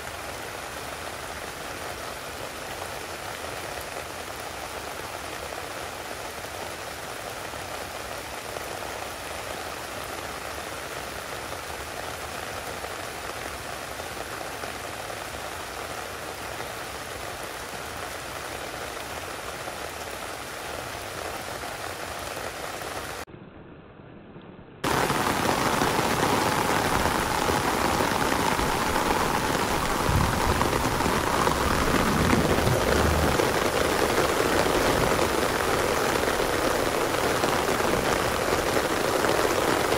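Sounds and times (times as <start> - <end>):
steady rain falling: 0.0 - 23.3, 24.8 - 39.9.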